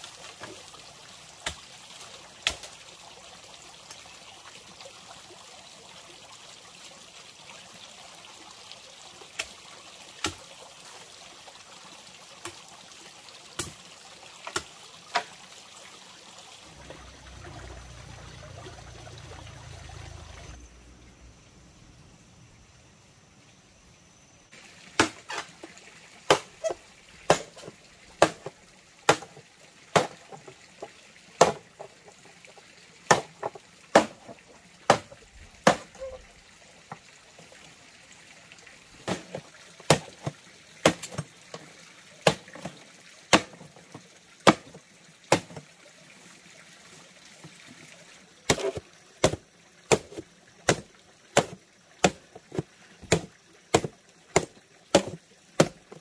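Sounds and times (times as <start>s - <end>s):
machete chopping bamboo: 13.6s - 13.8s, 25.0s - 25.5s, 26.3s - 28.5s, 29.1s - 30.2s, 31.4s - 31.6s, 33.1s - 34.3s, 34.9s - 35.9s, 39.0s - 41.2s, 42.2s - 42.7s, 43.3s - 43.6s, 44.4s - 45.6s, 48.5s - 56.0s.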